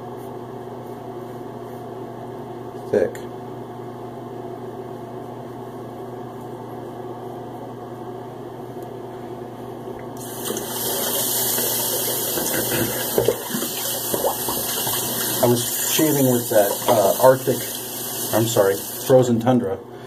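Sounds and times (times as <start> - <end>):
steady hum: 0.0 - 20.0
sink tap running water: 10.2 - 19.2.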